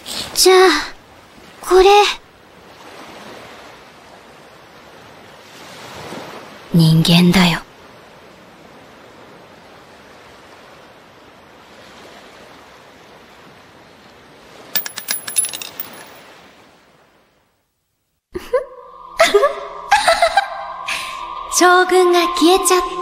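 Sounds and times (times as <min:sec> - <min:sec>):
glass object clinking on ground: 0:14.8 - 0:16.2.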